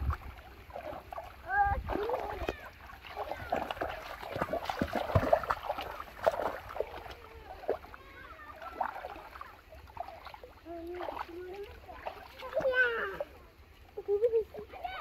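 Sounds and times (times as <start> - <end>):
muddy water splashing: 0.0 - 15.0.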